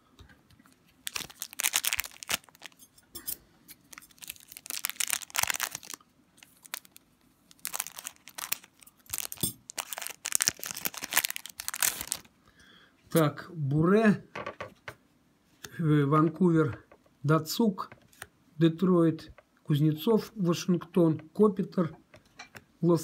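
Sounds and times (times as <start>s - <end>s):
foil wrapper crinkling: 1.0s - 2.8s, 3.8s - 12.3s.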